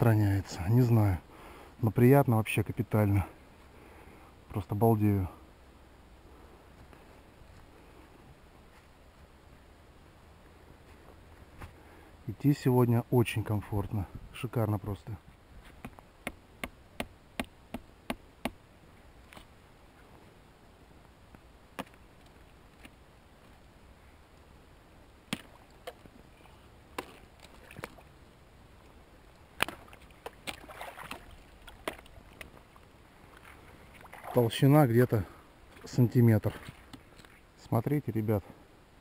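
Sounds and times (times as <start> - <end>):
boots wading through mud and water: 25.2 - 28.2, 28.8 - 37.4.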